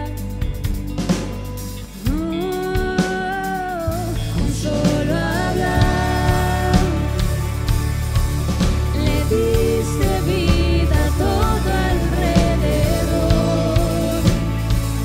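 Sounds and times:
worship band playing live: 0.0 - 15.0
person singing: 2.0 - 7.7, 8.9 - 14.7.

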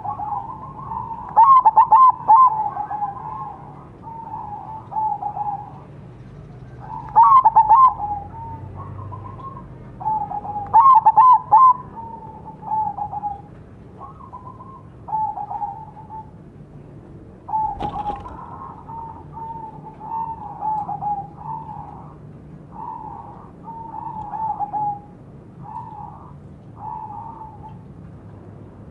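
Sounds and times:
dove cooing: 0.0 - 5.9, 6.6 - 16.4, 17.5 - 27.8.

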